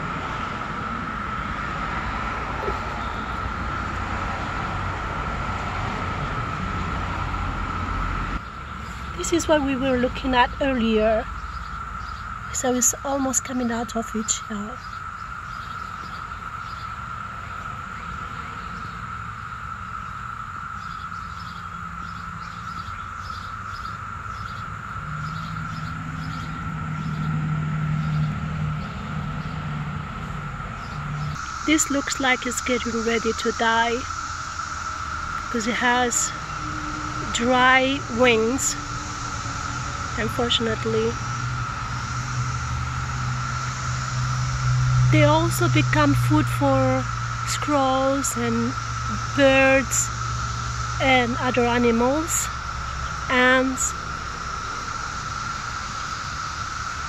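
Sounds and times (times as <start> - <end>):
cicadas droning: 0.0 - 57.0
low hum: 0.0 - 57.0
low rumble: 34.0 - 47.6.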